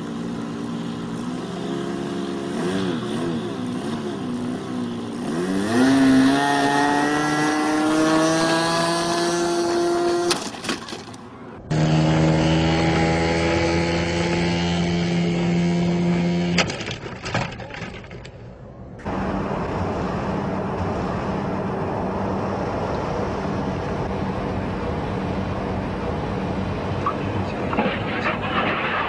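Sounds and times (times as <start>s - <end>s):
model airplane engine: 0.0s - 6.2s
turboprop aircraft landing: 18.7s - 29.0s.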